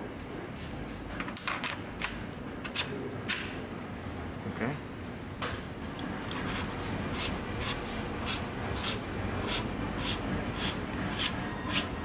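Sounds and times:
metal cup rubbing scrapes: 6.3s - 12.0s.

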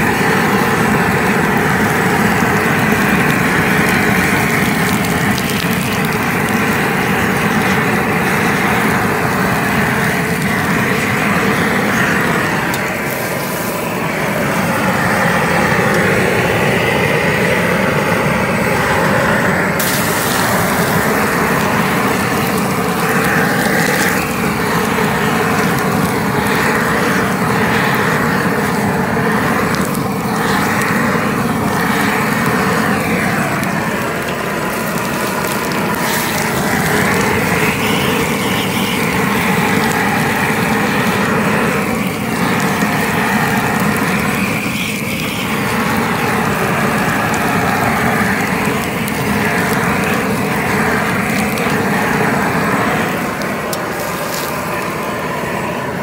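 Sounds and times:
propane torch roaring: 0.0s - 56.0s.

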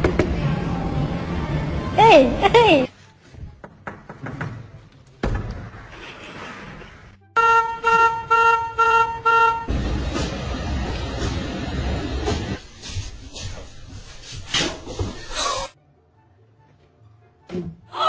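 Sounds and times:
car horn short toots: 7.4s - 9.7s.

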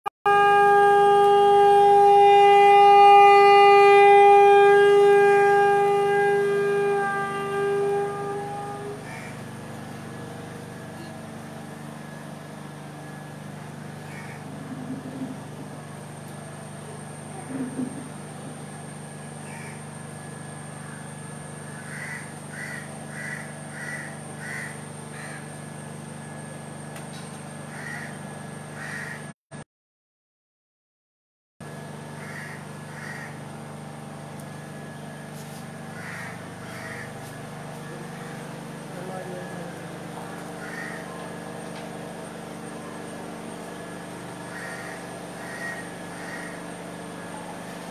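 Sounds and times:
conch shell blown: 0.3s - 25.6s
crow cawing: 8.9s - 9.4s, 14.0s - 15.4s, 19.4s - 19.9s, 20.8s - 25.6s, 27.7s - 28.2s, 28.8s - 29.3s, 32.2s - 33.4s, 35.9s - 37.4s, 40.2s - 41.4s, 44.4s - 46.8s.

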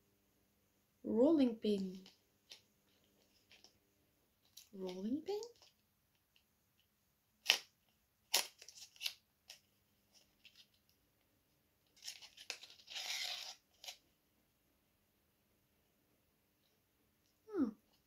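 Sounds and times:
packaging tearing and peeling: 7.4s - 7.7s, 8.3s - 9.6s, 12.0s - 14.0s
packaging crinkling: 8.3s - 10.8s, 12.0s - 14.0s.

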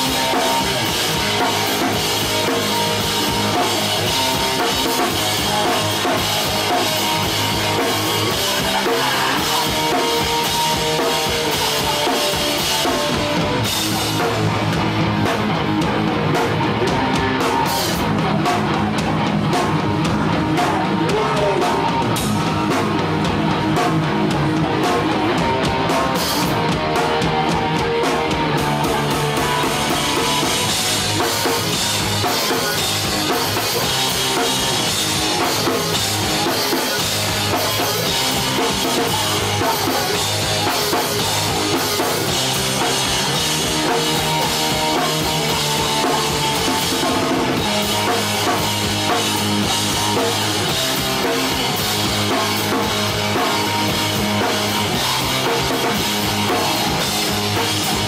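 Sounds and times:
punk band playing live: 0.0s - 58.0s.

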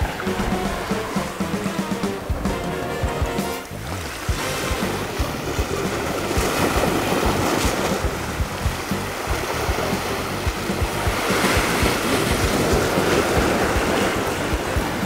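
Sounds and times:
background music: 0.0s - 15.0s
sea waves: 0.0s - 15.0s
wind buffeting microphone: 3.7s - 15.0s
wind on open water: 3.7s - 15.0s.

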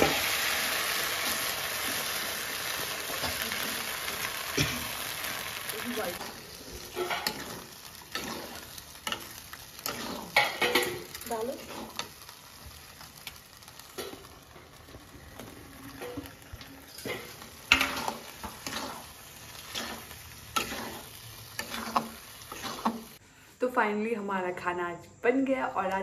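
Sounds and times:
faint sizzle of frying: 0.0s - 23.2s
metal spatula scraping pan: 6.0s - 12.3s, 15.4s - 23.2s.

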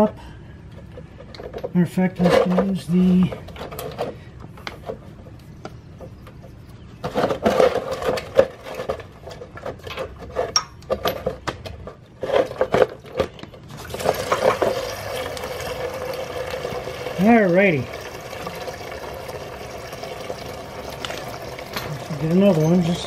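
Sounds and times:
container being shifted: 13.7s - 17.3s
coolant draining hiss: 14.1s - 23.0s.

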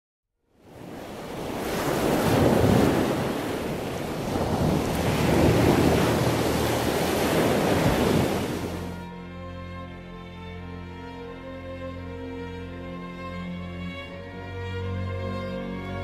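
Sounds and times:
waves breaking: 0.6s - 9.0s.

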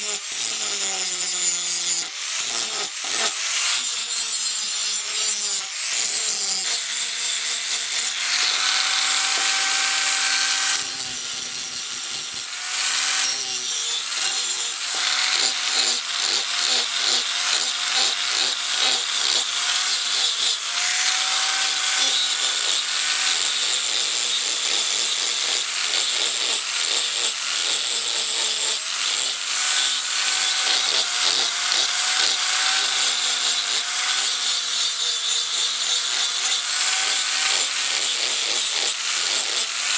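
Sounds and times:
angle grinder grinding steel: 0.0s - 39.9s.

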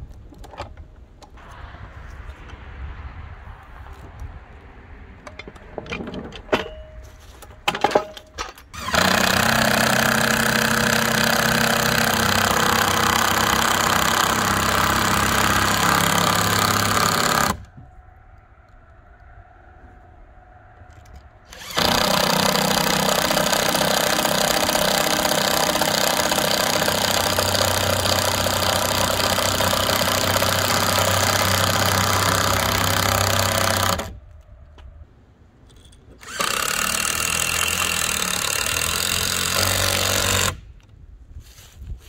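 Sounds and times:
loud motor-driven machine running: 8.8s - 17.7s, 21.5s - 34.1s.

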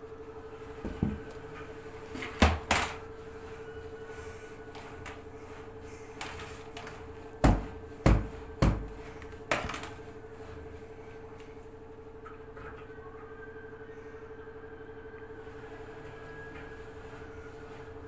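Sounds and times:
steady hum: 0.0s - 18.0s
plastic laundry basket thumps: 7.4s - 10.0s.

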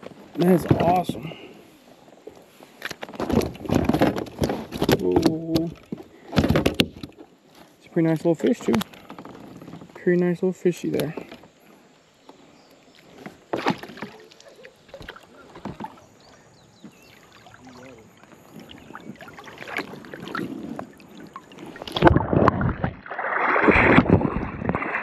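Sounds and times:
water splashing: 12.9s - 25.0s.

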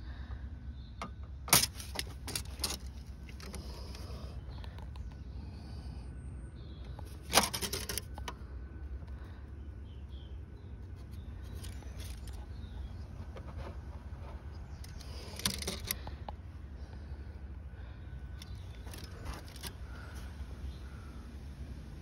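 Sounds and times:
steady low hum: 0.0s - 22.0s
clicking and clattering: 1.5s - 5.1s, 7.0s - 8.4s, 11.5s - 16.4s.

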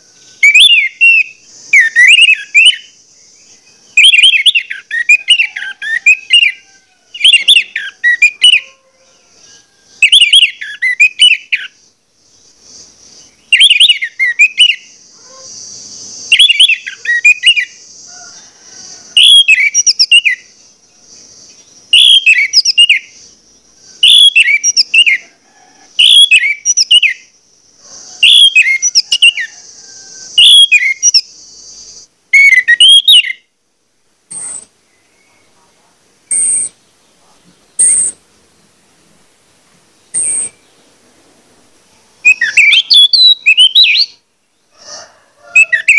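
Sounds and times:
bird singing whistled phrases: 0.4s - 2.9s, 4.0s - 6.6s, 7.2s - 8.8s, 10.0s - 11.8s, 13.5s - 15.5s, 16.3s - 17.8s, 19.2s - 20.5s, 21.9s - 23.2s, 24.0s - 25.2s, 26.0s - 27.3s, 28.2s - 29.5s, 30.4s - 31.3s, 32.4s - 33.4s, 42.2s - 44.2s, 45.6s - 45.9s.

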